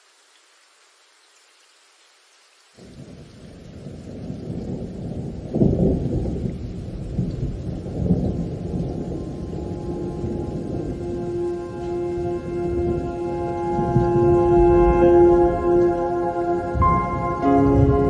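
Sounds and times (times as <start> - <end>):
faint hiss: 0.0 - 6.3
deep thunder-like rumble music: 4.5 - 18.0.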